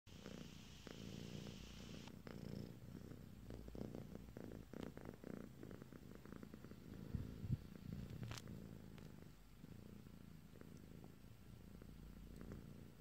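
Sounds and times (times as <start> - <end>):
cat purring: 0.1 - 13.0
rustling: 7.2 - 9.3.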